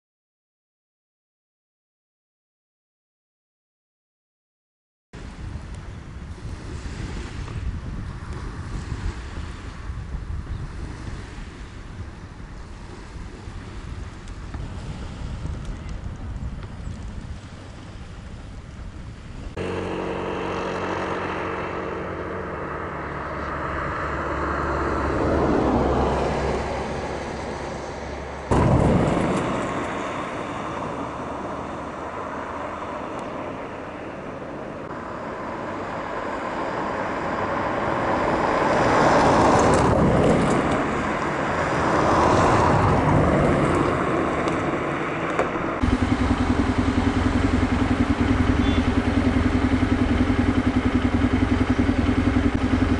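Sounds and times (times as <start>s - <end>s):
steady low engine hum: 12.8s - 38.4s, 43.0s - 52.9s
engines passing: 17.3s - 52.9s.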